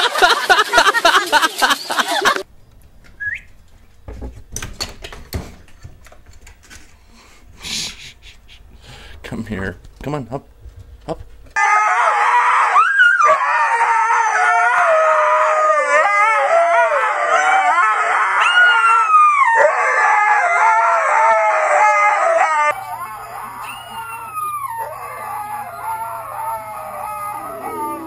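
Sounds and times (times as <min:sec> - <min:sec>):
husky howling: 0:11.6 - 0:28.0
quieter dog howl: 0:11.6 - 0:28.0.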